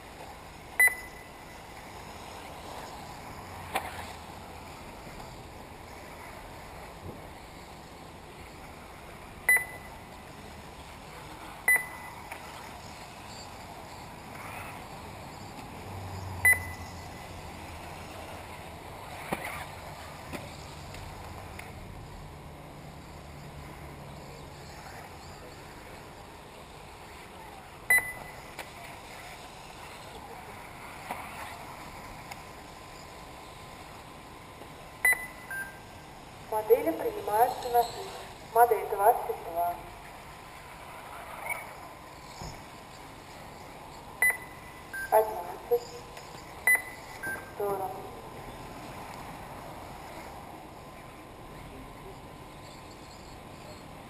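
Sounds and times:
rc car race noise: 0.0s - 54.0s
short high electronic beeps: 0.8s - 1.3s, 16.4s - 17.0s, 27.9s - 28.4s, 44.2s - 47.6s.

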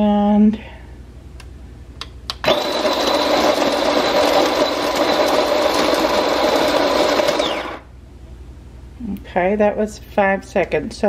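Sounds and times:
coffee grinder grinding beans: 2.4s - 7.9s.

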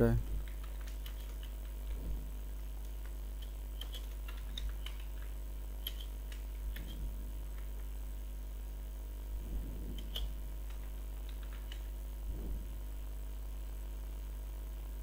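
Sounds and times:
steady low hum: 0.0s - 15.0s.

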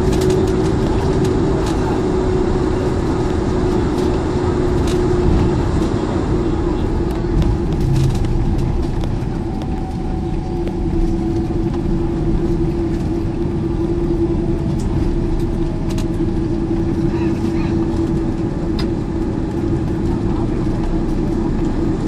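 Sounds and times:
jet engines idling: 0.0s - 22.0s
steady cabin hum: 0.0s - 22.0s.

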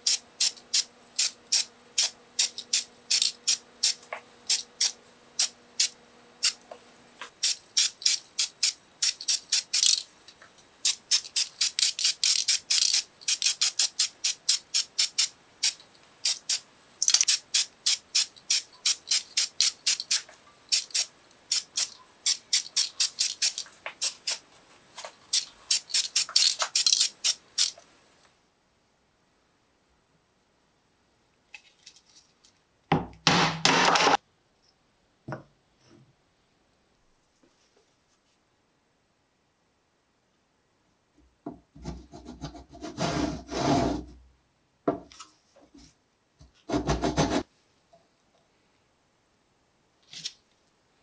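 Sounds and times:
spray paint can hissing: 0.0s - 6.6s, 7.2s - 10.1s, 10.8s - 24.4s, 25.0s - 27.8s.

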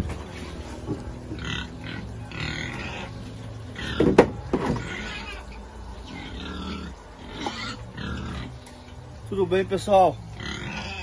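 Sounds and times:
pigs grunting: 1.2s - 8.6s, 10.2s - 11.0s.

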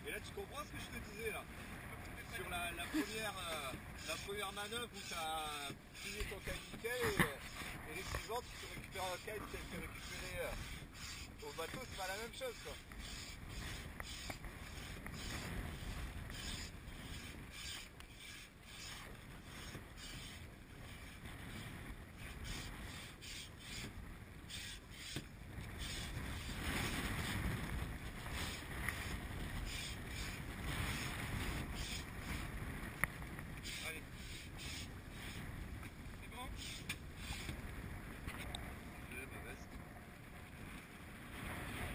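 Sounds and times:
water lapping at a boat: 0.0s - 41.9s
wind buffeting microphone: 0.0s - 41.9s
kite rustling and knocking: 25.0s - 33.6s.

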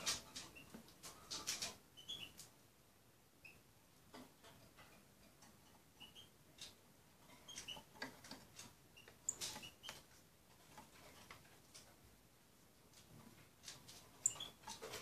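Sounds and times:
bird peeping: 2.0s - 2.5s, 6.0s - 6.4s, 9.0s - 10.1s, 14.2s - 14.7s
beak pecking on glass bowl: 14.2s - 14.9s.

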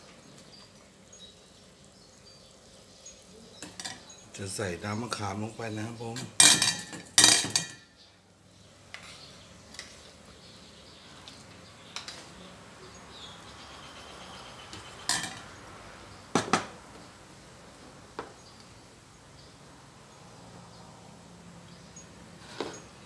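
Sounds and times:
metal ladle clinking on pot: 3.6s - 4.1s, 6.2s - 7.9s, 15.1s - 15.4s.

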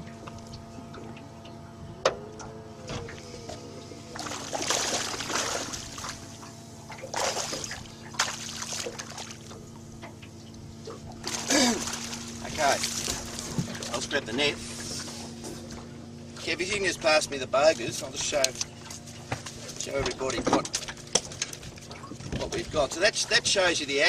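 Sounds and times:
steady low hum: 0.0s - 24.0s
fish splashing at surface: 4.2s - 6.3s, 7.0s - 9.5s.

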